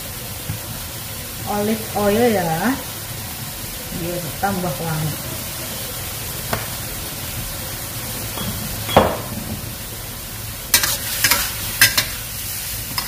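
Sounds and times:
food sizzling in a wok: 0.0s - 13.0s
spatula scraping wok: 10.7s - 13.0s.

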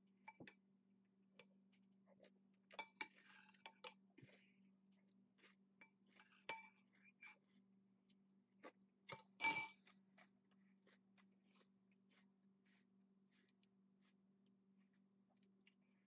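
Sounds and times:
spoon clinking against bowl: 2.8s - 4.0s, 9.1s - 10.0s
spoon scraping bowl: 2.8s - 4.5s, 5.4s - 7.6s, 9.1s - 14.2s.

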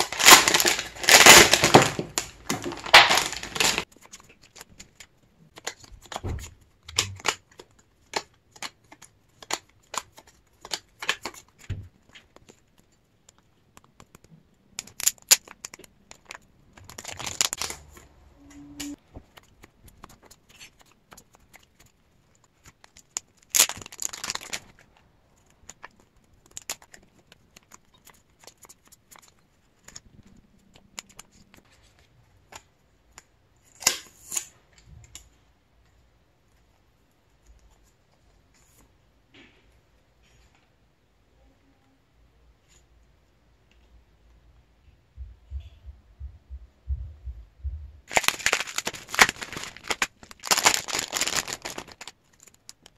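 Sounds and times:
plastic sleeves crinkling: 0.0s - 34.9s, 48.1s - 52.9s.

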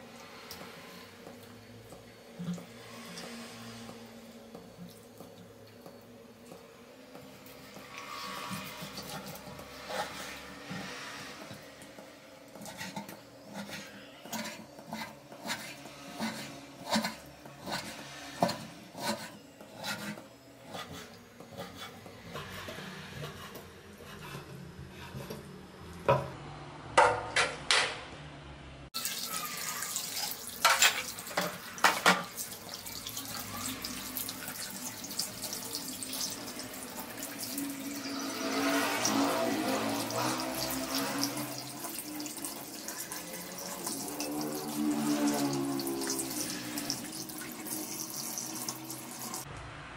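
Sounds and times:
tap water running into sink: 29.0s - 38.3s, 39.0s - 49.4s.

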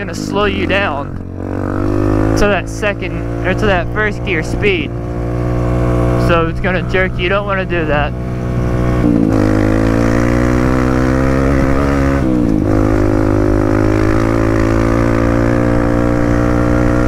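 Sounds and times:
dirt bike engine running: 0.0s - 17.0s.

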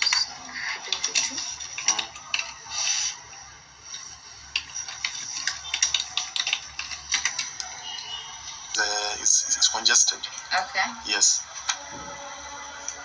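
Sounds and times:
keyboard typing clicks: 4.5s - 8.2s.

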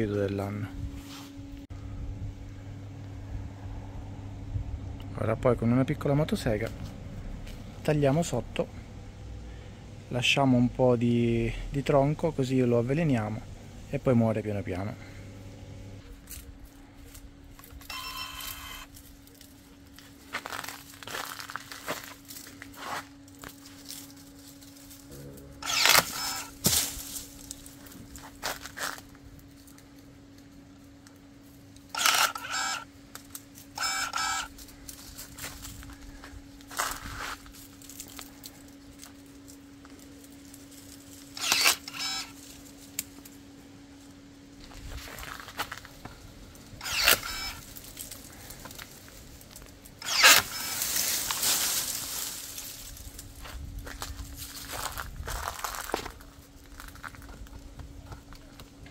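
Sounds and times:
pruning shears motor whirring: 2.5s - 29.8s, 31.0s - 43.4s, 44.6s - 55.6s
rustle of leaves and twigs: 16.0s - 57.7s
wood crunching and snapping: 16.1s - 30.4s, 31.8s - 43.4s, 44.6s - 58.9s
blade cracking through branch: 25.6s - 27.8s, 40.8s - 43.4s, 46.8s - 53.2s.

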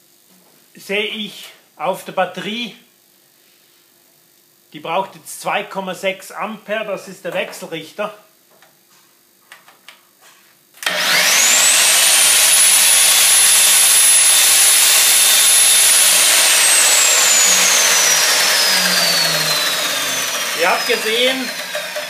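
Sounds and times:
angle grinder whining: 10.8s - 22.0s.

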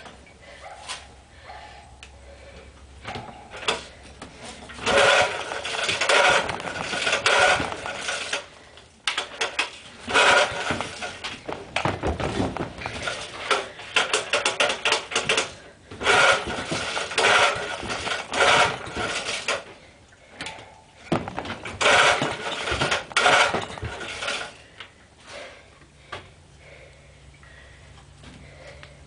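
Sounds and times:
recoil starter rasping: 3.0s - 25.5s
engine turning over: 4.6s - 19.8s, 21.2s - 24.7s.

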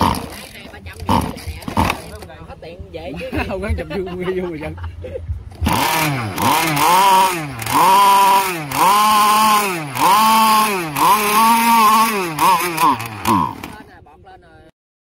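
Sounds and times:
two-stroke engine revving: 0.0s - 2.3s, 5.5s - 14.0s.

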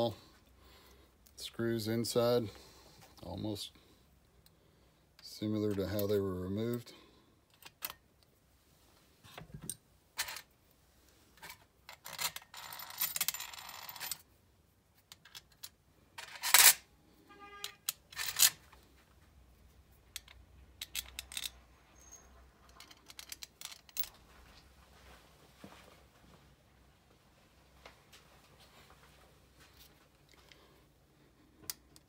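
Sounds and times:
metal parts rattling: 11.4s - 14.2s, 15.1s - 16.8s, 17.8s - 18.6s, 20.1s - 21.6s, 22.6s - 24.1s
screws and tools clinking on metal: 11.4s - 14.3s, 17.6s - 18.7s, 20.1s - 24.2s.

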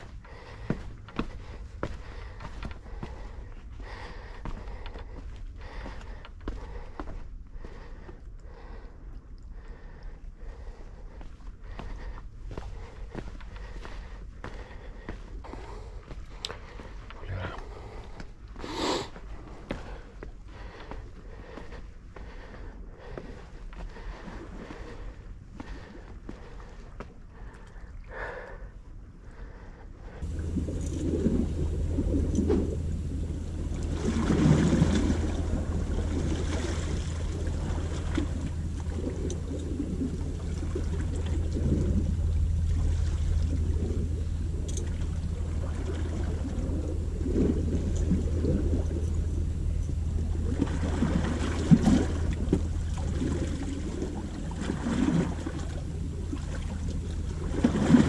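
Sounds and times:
water washing: 30.2s - 58.0s.

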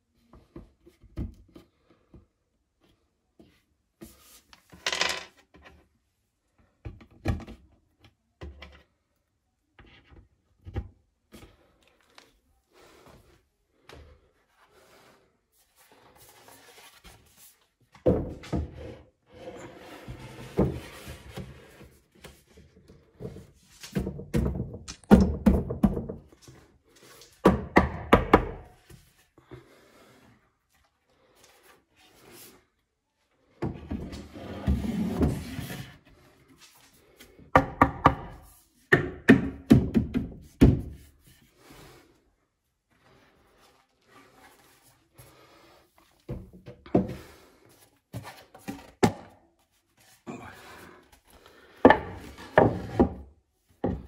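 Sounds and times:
wooden shelves knocking: 23.9s - 26.3s, 51.8s - 54.0s.

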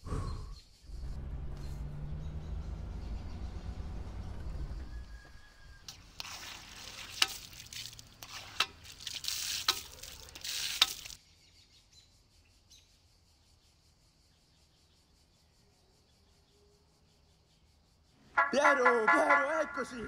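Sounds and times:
water gushing from fountain tap: 5.9s - 11.2s.

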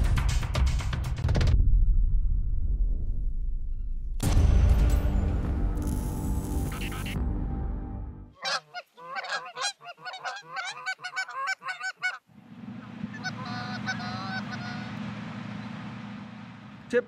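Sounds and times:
steady low rumble: 1.2s - 4.3s, 12.3s - 17.0s
geese honking: 8.4s - 16.5s.

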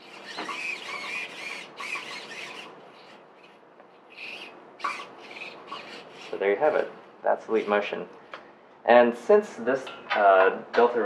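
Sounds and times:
servos whining in bursts: 0.0s - 8.0s.

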